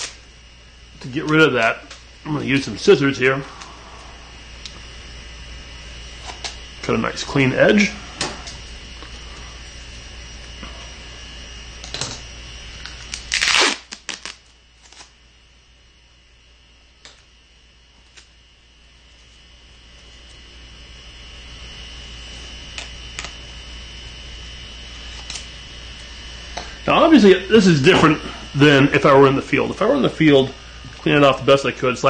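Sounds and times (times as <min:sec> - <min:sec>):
tape ripping: 0:12.9 - 0:15.2.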